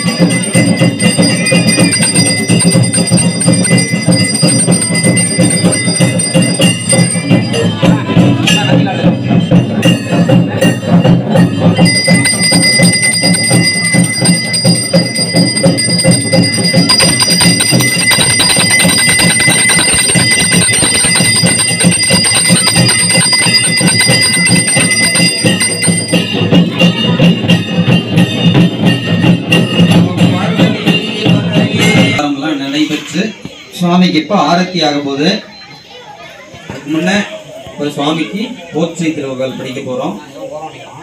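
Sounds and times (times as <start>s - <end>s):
bell ringing: 0.0s - 32.2s
rhythmic devotional music: 0.0s - 32.2s.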